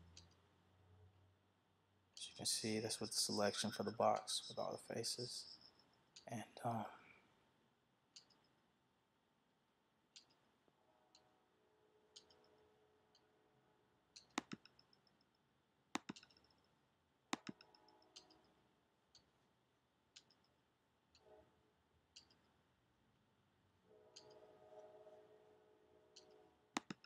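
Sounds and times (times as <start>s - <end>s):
computer mouse button clicks: 17.4s - 18.3s.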